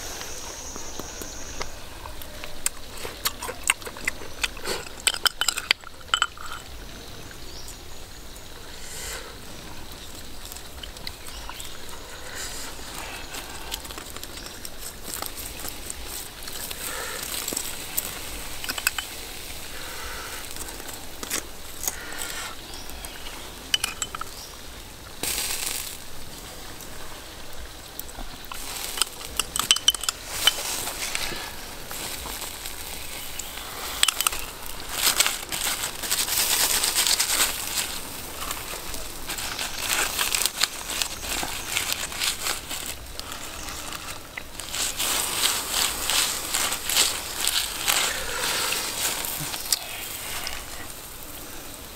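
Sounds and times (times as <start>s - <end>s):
meat sizzling on a grill: 8.5s - 51.9s.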